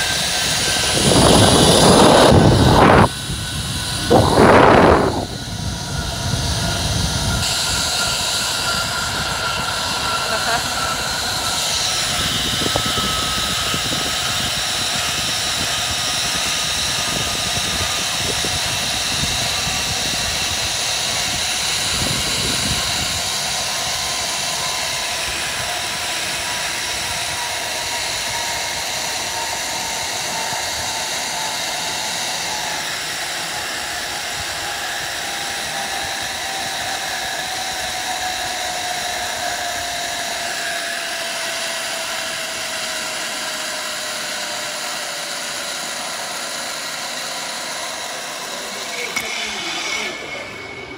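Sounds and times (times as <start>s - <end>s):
wind buffeting microphone: 0.0s - 10.1s, 10.8s - 23.7s
rushing air: 0.0s - 10.2s
zip-line pulleys whining on cable: 0.0s - 50.9s.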